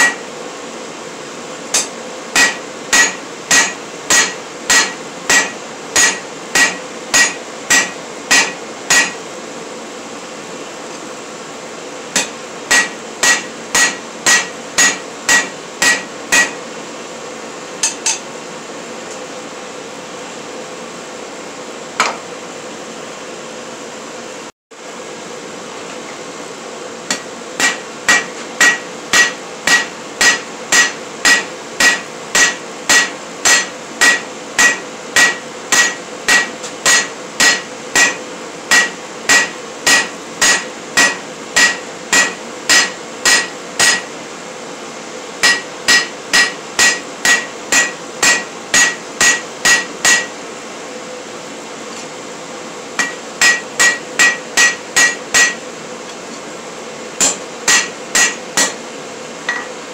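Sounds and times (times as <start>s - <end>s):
hammer ringing on anvil: 0.0s - 0.3s, 1.7s - 9.2s, 12.2s - 16.6s, 17.8s - 18.2s, 27.1s - 44.1s, 45.4s - 50.3s, 53.0s - 55.6s, 57.2s - 58.8s, 59.5s - 59.8s
steady hum: 0.0s - 59.9s.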